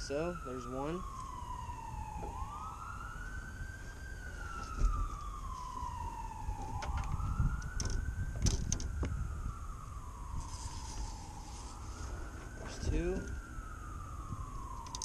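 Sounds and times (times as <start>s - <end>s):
emergency siren wailing: 0.0s - 15.0s
fishing rods clicking and knocking: 7.8s - 8.9s.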